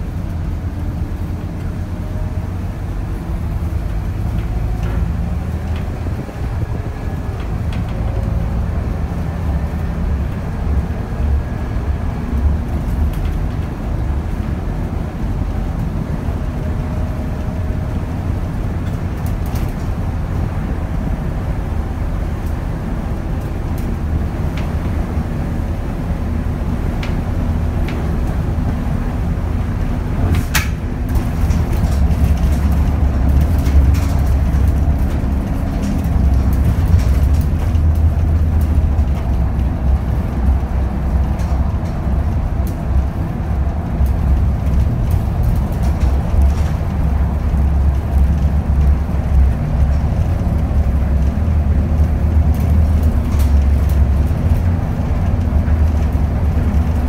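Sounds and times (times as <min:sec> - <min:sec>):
bus diesel engine and road rumble: 0:00.0 - 0:57.0.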